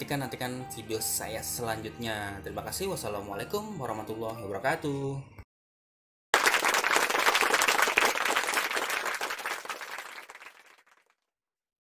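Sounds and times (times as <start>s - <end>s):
crowd applauding: 6.4s - 11.1s.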